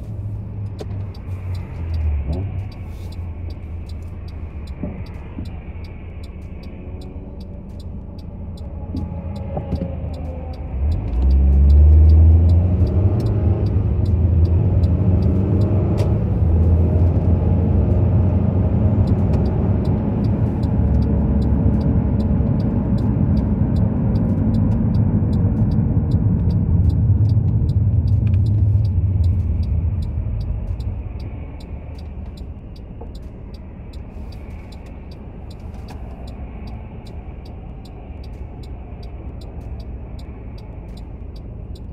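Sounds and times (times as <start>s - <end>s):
car engine accelerating: 0.0s - 41.9s
road rumble: 0.0s - 41.9s
fast regular ticking: 0.7s - 9.5s, 19.0s - 41.9s.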